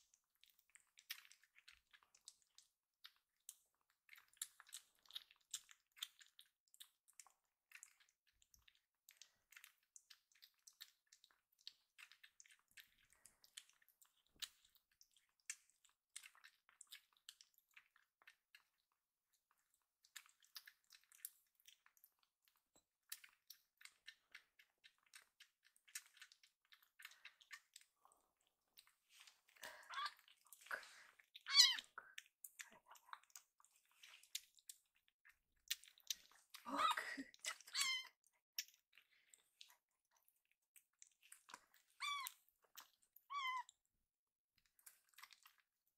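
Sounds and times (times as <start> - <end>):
kitten suckling from bottle: 0.0 - 45.9.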